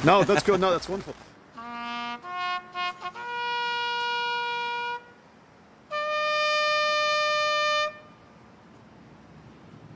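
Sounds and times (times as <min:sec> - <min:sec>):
bugle long notes: 0:01.5 - 0:08.3.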